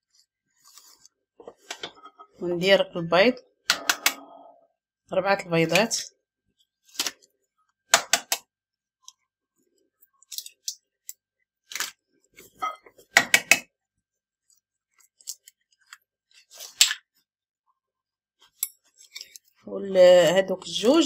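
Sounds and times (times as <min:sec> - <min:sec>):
eggs cracking on a bowl: 0:07.9 - 0:08.5, 0:13.0 - 0:13.7.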